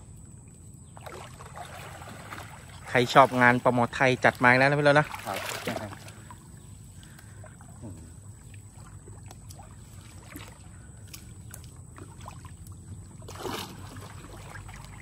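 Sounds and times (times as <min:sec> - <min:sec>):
pond water sloshing and dripping: 0:00.0 - 0:15.0
loud water splash: 0:13.3 - 0:15.0.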